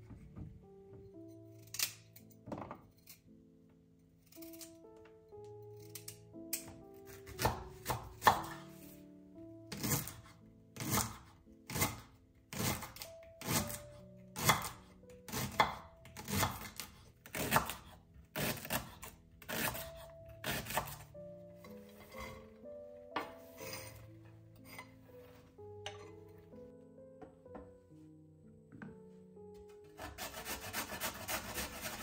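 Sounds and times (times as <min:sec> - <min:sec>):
background music: 0:00.0 - 0:32.0
knife chopping on wooden board: 0:06.6 - 0:08.6, 0:14.4 - 0:17.8, 0:18.4 - 0:21.0.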